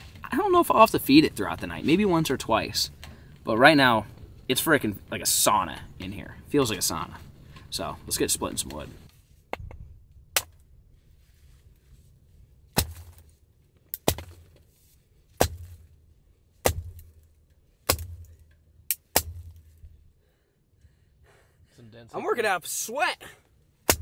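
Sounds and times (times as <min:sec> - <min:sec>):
hatchet knocking log on wood: 0:13.9 - 0:14.5, 0:15.4 - 0:15.8, 0:16.6 - 0:17.1, 0:17.9 - 0:19.6.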